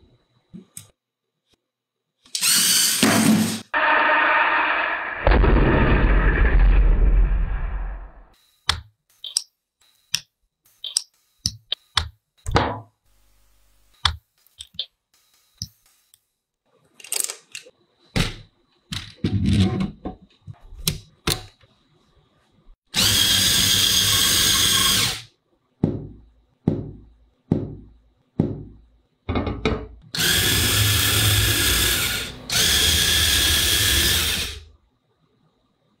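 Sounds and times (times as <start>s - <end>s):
small electric motor whirring: 2.4s - 3.0s.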